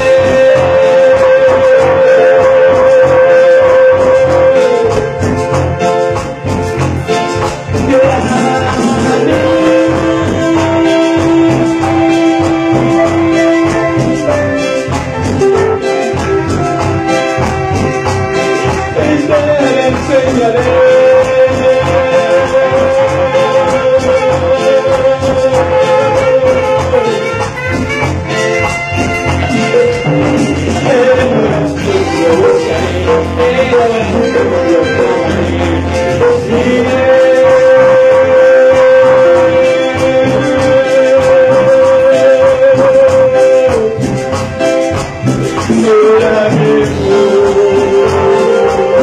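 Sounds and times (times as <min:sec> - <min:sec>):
live band playing latin music: 0:00.0 - 0:49.0.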